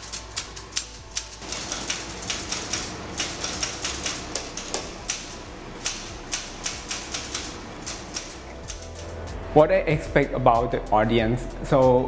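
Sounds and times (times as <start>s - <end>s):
typewriter keys clacking: 0.0s - 9.2s.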